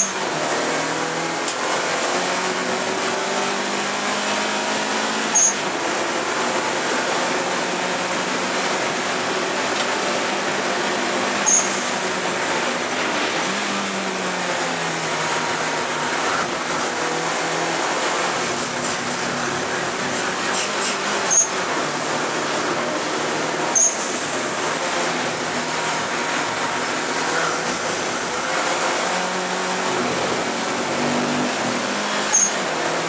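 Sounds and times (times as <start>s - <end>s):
turbocharged engine running hard: 0.0s - 33.0s
wind and road noise: 0.0s - 33.0s
short high chirps: 5.4s - 5.6s, 11.5s - 11.8s.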